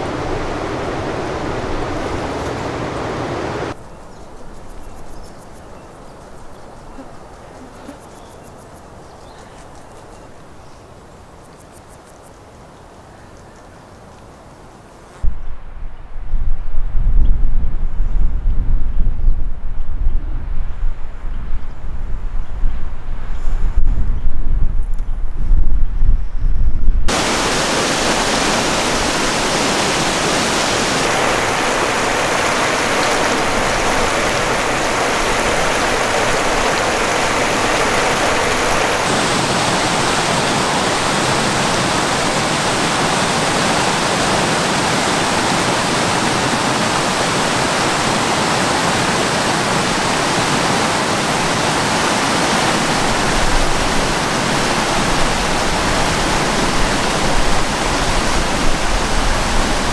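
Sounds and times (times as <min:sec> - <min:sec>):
water rushing over rocks: 0:00.0 - 0:03.8, 0:27.1 - 0:59.9.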